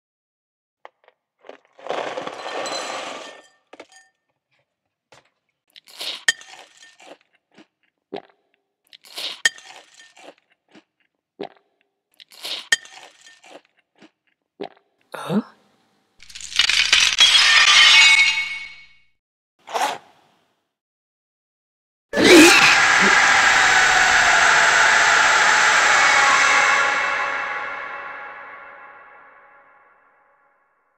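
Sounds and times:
glass shattering crash: 1.8s - 4.1s, 16.2s - 19.0s
burst of noise: 22.2s - 29.8s
falling tone: 22.6s - 30.5s.

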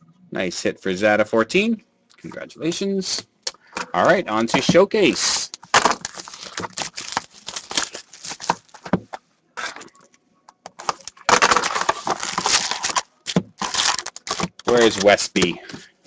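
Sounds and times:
cardboard and wrapper rustling: 5.1s - 9.9s, 10.7s - 15.5s
shrink wrap crinkling and tearing: 5.2s - 9.0s, 10.7s - 15.4s.

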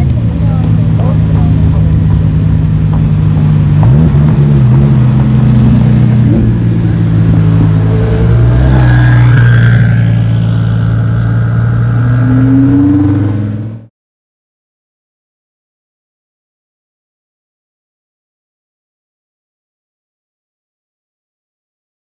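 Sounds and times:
car engine running at low revs: 0.0s - 13.9s.

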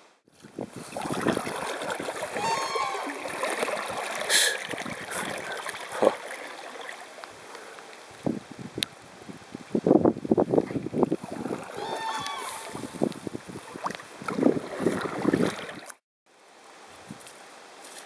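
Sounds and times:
paddle strokes splashing: 0.3s - 8.0s, 10.6s - 16.0s
water rushing against kayak: 0.3s - 8.4s, 10.2s - 16.0s.

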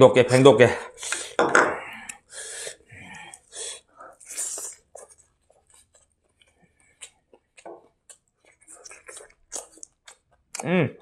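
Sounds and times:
breathy puffs: 0.9s - 4.9s
wet chewing: 2.0s - 10.8s.

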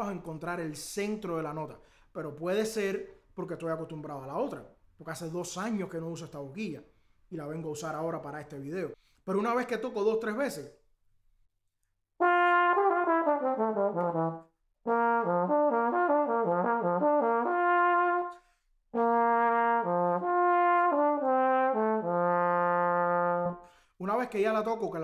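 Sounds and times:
solo trombone playing: 12.2s - 23.6s.

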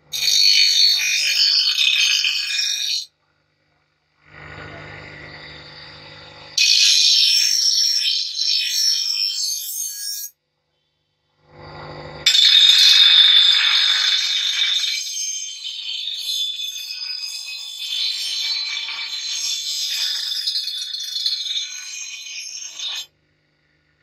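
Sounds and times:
grinder motor hum: 4.2s - 6.6s, 11.4s - 12.3s
blade grinding on bench grinder: 15.9s - 23.1s.

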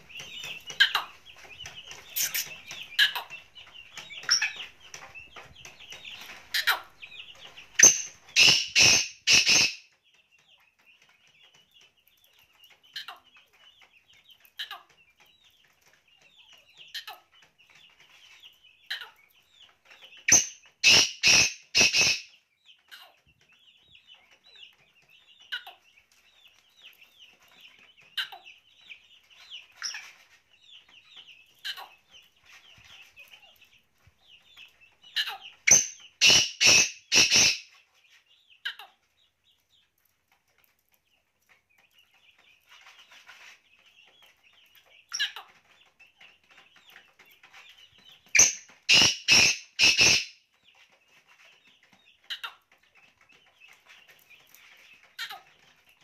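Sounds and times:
bird harsh clipped calls: 2.1s - 3.3s, 7.8s - 9.9s, 20.3s - 22.3s, 35.2s - 37.7s, 48.4s - 50.4s.

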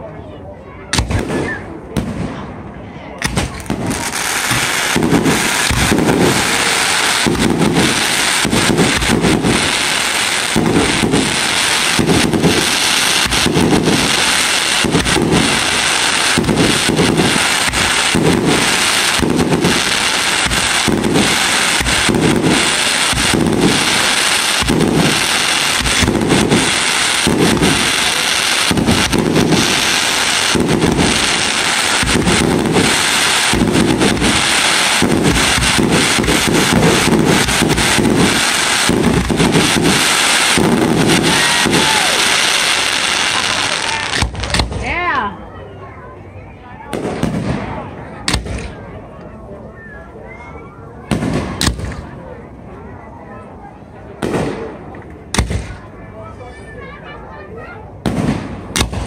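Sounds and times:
firework crackles and bangs: 0.9s - 45.1s, 46.9s - 49.0s, 51.0s - 52.4s, 54.1s - 56.0s, 58.0s - 59.0s
firework low thumps: 3.2s - 44.8s, 46.9s - 48.8s, 54.2s - 55.8s
loud continuous hiss: 3.2s - 56.5s.

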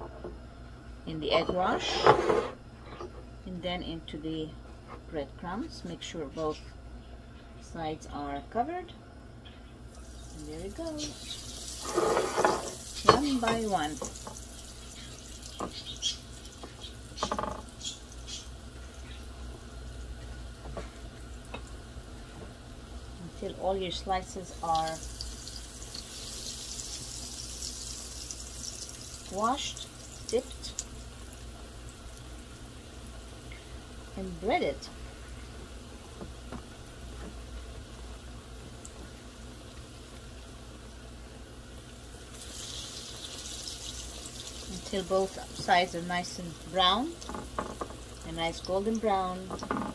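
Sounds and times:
eggplant frying in oil: 9.8s - 49.9s
egg wash sloshing and dripping: 12.7s - 22.2s, 24.2s - 34.0s, 41.8s - 45.4s.

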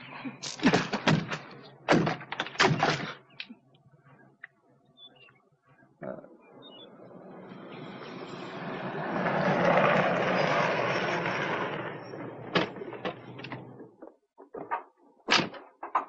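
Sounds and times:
car engine and tyre noise: 6.6s - 14.2s.

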